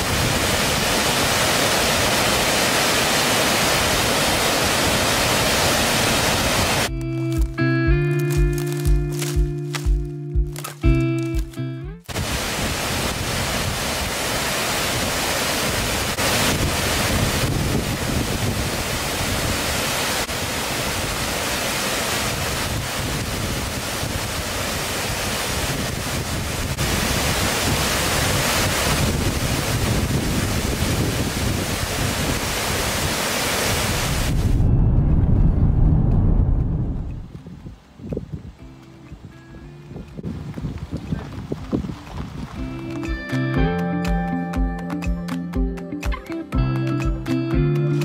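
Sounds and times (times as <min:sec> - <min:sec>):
waterfall roaring: 0:00.0 - 0:07.5, 0:12.1 - 0:34.5.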